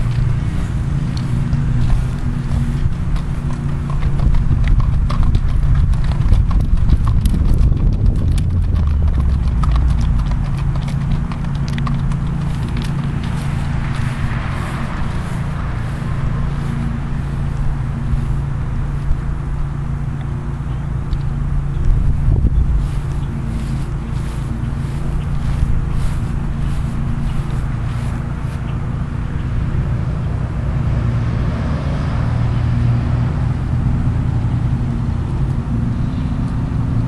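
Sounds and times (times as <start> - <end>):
hoofbeats on gravel: 0.0 - 29.4
low rumble: 0.0 - 37.0.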